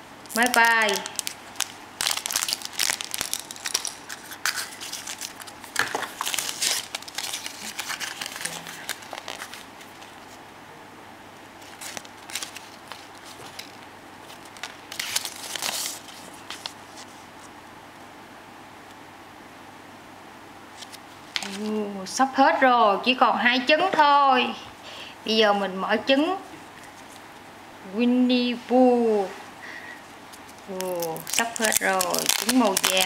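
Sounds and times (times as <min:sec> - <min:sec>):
plastic packaging crinkling: 0:00.0 - 0:10.4, 0:11.6 - 0:17.2, 0:30.3 - 0:33.0.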